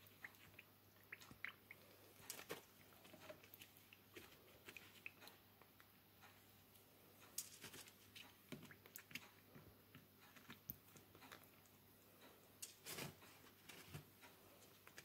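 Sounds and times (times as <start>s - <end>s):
fingers squishing wet bread: 0.0s - 6.0s, 7.4s - 11.8s.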